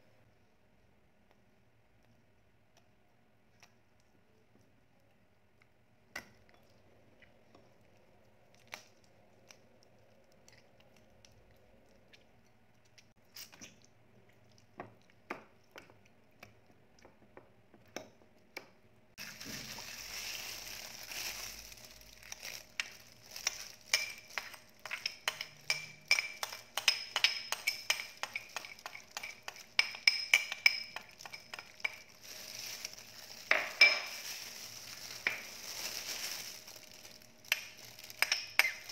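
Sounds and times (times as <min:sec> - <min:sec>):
plastic glove crinkling: 0:19.2 - 0:25.3, 0:28.1 - 0:38.9
metal utensil tapping ceramic dish: 0:24.0 - 0:32.0.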